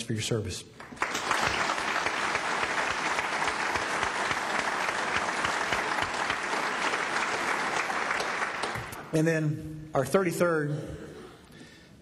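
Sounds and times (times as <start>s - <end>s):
audience applauding: 0.8s - 9.1s.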